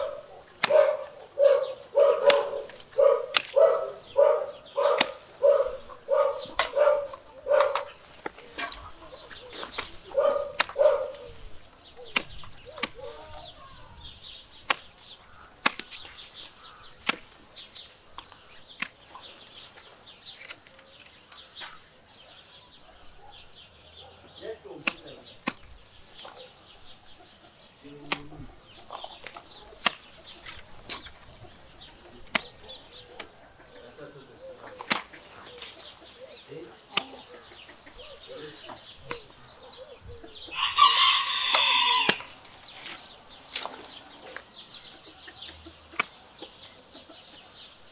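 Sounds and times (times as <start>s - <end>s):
dog barking: 0.0s - 8.0s, 10.1s - 11.3s, 22.3s - 24.3s, 26.3s - 26.6s
pruning shears snipping branches: 0.0s - 13.5s, 14.4s - 21.8s, 24.7s - 26.6s, 27.9s - 33.4s, 34.6s - 36.2s, 36.8s - 39.6s, 41.2s - 44.5s, 45.9s - 46.8s.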